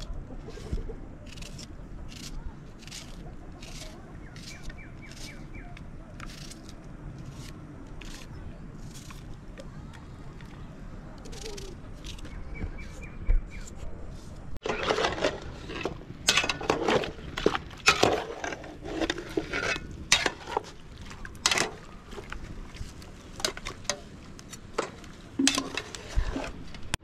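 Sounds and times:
metal spoon scraping steel pot: 14.6s - 20.7s, 25.4s - 26.7s.

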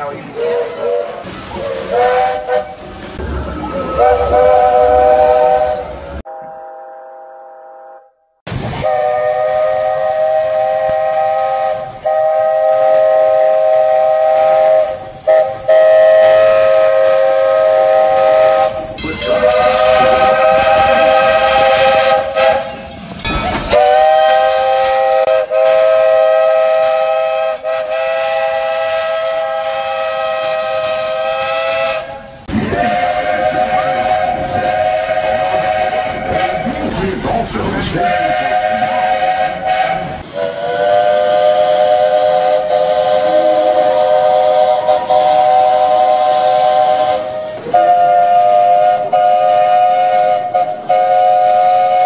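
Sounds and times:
steam hissing: 0.0s - 5.9s, 8.5s - 52.0s
three-chime steam whistle blasts: 3.6s - 8.1s, 8.8s - 32.2s, 38.5s - 52.0s.

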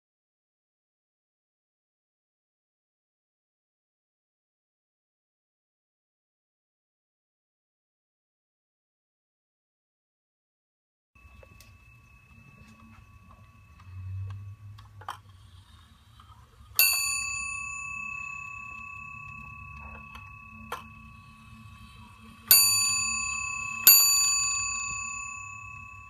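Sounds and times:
clock bell striking: 11.2s - 26.0s
clock movement clicks: 11.3s - 22.7s.

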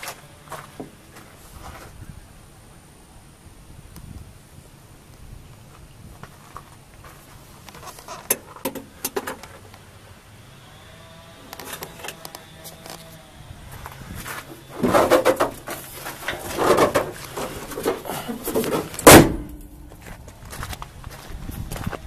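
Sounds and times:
metal clattering and rattling: 14.7s - 19.6s
truck hood slamming: 18.6s - 19.6s.

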